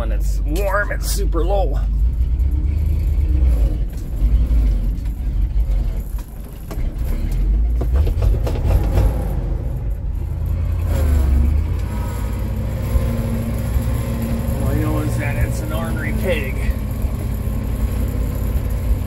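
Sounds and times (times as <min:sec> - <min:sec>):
truck engine droning: 0:00.0 - 0:19.0.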